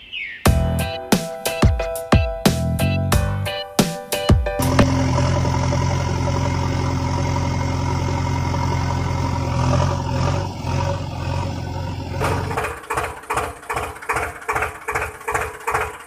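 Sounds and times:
truck engine idling: 4.6 - 16.0.

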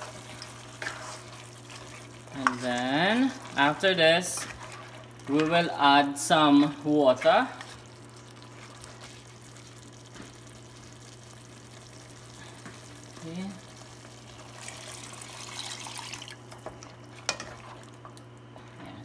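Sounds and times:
wooden spatula stirring stew: 0.0 - 13.0
water pouring into stew: 13.7 - 18.0.

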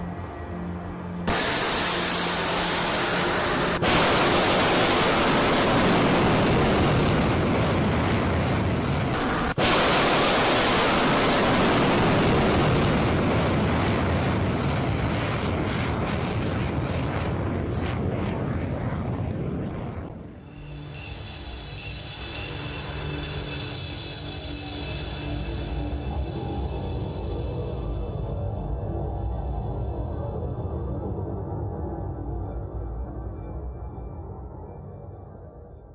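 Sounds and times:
rocket motor roaring: 1.3 - 17.7.

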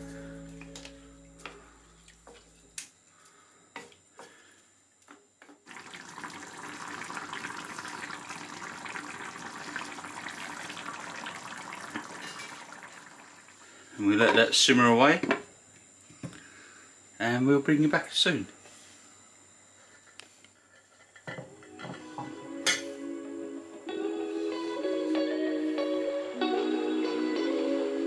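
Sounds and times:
background music: 0.0 - 1.6, 21.7 - 28.0
sauce bubbling in pan: 5.7 - 13.8.

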